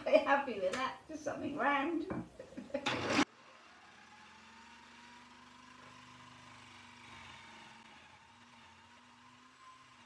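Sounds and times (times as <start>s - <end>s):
wood lathe motor humming: 2.8s - 10.0s.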